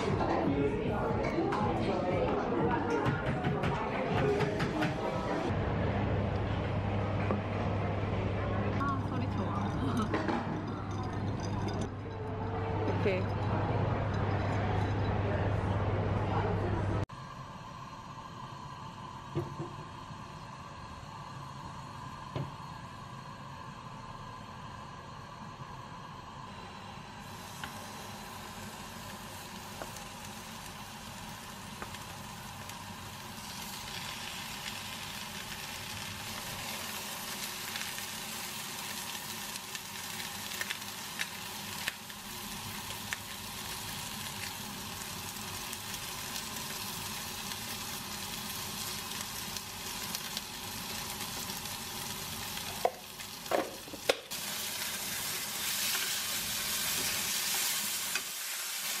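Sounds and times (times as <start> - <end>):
pork sizzling in a frying pan: 27.2 - 59.0.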